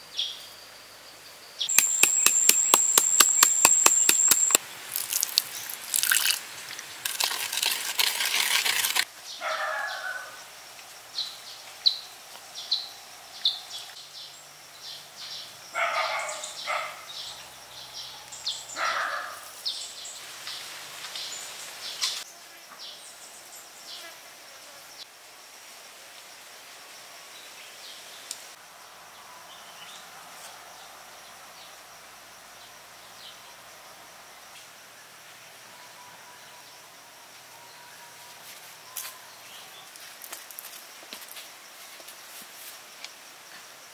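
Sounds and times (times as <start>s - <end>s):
insects: 0.0s - 43.9s
water splashing into a bowl: 4.9s - 9.0s.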